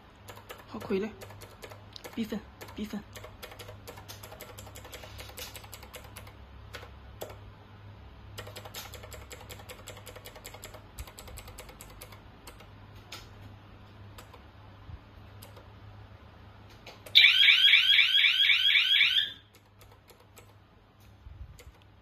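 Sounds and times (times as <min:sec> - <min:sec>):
low steady hum: 0:00.0 - 0:22.0
keypad buttons clicking: 0:00.2 - 0:07.4, 0:08.4 - 0:13.3, 0:14.1 - 0:14.4, 0:15.3 - 0:15.7, 0:19.5 - 0:20.6, 0:21.5 - 0:21.9.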